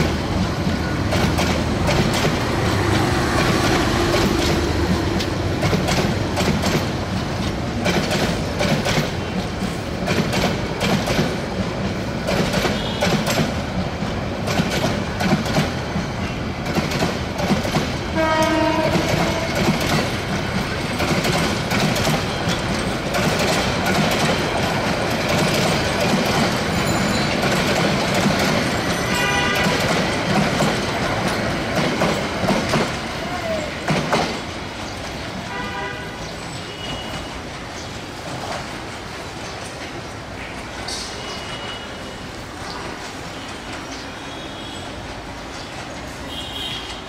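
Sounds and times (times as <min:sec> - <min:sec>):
train wheels clattering over rail joints: 0:00.0 - 0:35.5
train horn: 0:18.1 - 0:19.7, 0:29.0 - 0:30.0, 0:35.5 - 0:37.3, 0:46.3 - 0:47.0.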